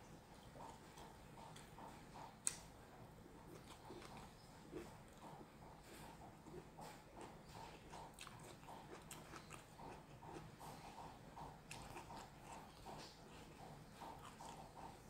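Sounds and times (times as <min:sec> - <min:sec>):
person chewing food: 0:00.0 - 0:15.0.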